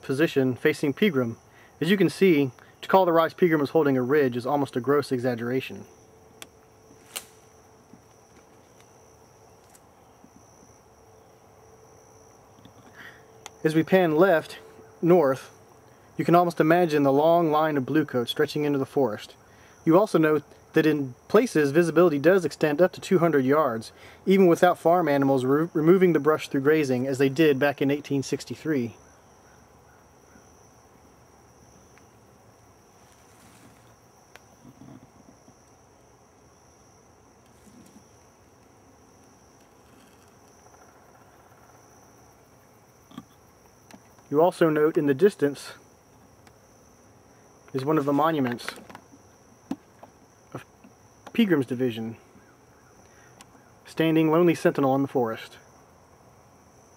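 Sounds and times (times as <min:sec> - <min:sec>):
high-pitched insect chorus: 0:00.0 - 0:56.9
soft low rustle: 0:32.9 - 0:34.0, 0:37.5 - 0:38.2.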